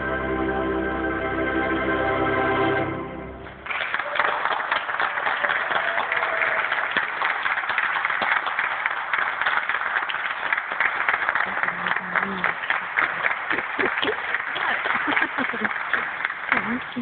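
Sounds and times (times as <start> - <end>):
organ chord: 0.0 - 3.9
audience applause: 3.6 - 17.0.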